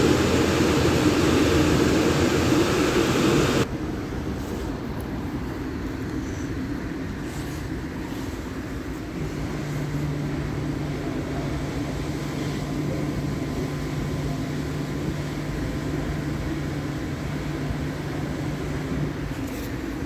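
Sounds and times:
low hum: 0.0s - 3.7s
car wash machinery hum and rush: 0.0s - 20.0s.

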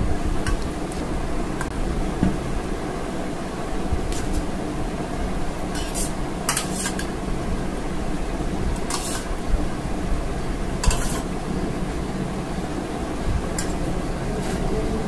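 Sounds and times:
low background hum: 0.0s - 15.0s
metal spoon scraping steel bowl: 5.7s - 7.1s, 8.8s - 9.3s, 10.8s - 11.3s.

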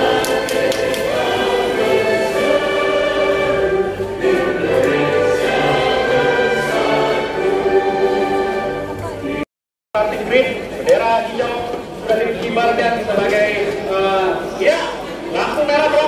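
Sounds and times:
choir singing long held notes: 0.0s - 9.5s.

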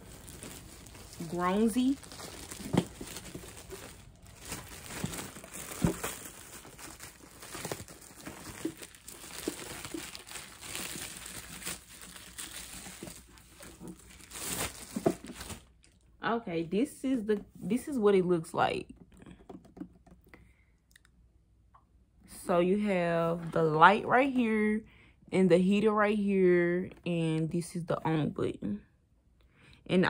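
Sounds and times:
plastic packaging crinkling: 0.0s - 16.0s.

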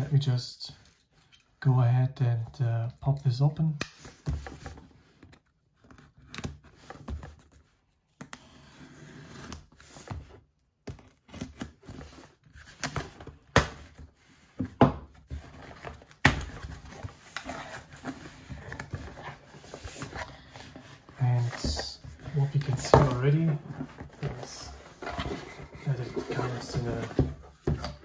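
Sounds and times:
cardboard scratching and rustling: 15.2s - 28.0s.

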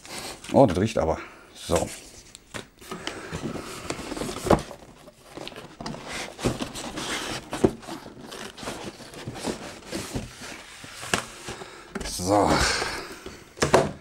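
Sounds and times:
cardboard rustling and sliding: 2.8s - 13.0s.

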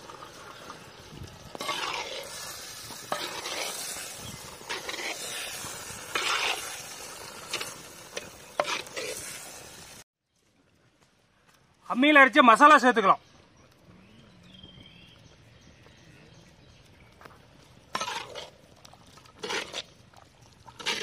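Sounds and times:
masala sizzling: 0.0s - 10.8s, 16.8s - 21.0s
spatula scraping a pot: 1.5s - 9.4s, 17.9s - 18.6s, 19.4s - 19.9s, 20.7s - 21.0s.

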